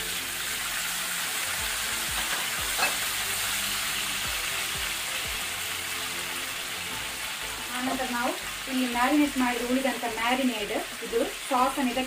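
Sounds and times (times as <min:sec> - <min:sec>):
chicken sizzling in hot oil: 0:00.0 - 0:12.0.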